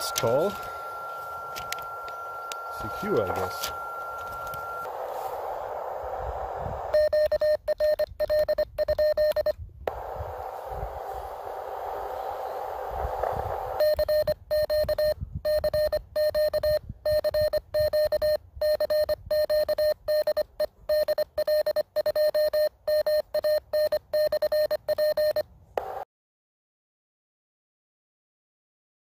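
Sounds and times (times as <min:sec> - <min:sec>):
morse code beeps: 0:00.0 - 0:04.9, 0:06.9 - 0:09.6, 0:13.8 - 0:25.4
receiver hiss: 0:00.0 - 0:18.2, 0:24.7 - 0:26.0.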